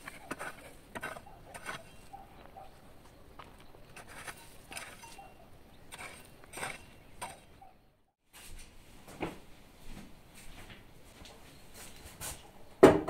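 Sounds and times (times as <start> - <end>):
garden hoe scraping soil: 0.0 - 7.8.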